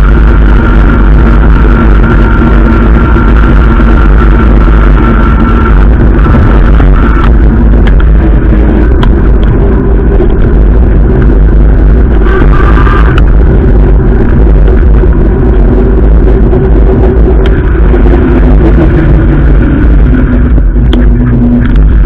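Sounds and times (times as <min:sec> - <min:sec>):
low hum: 0:00.0 - 0:22.0
tyre and road noise: 0:00.0 - 0:22.0
wind rumble on microphone: 0:00.0 - 0:22.0.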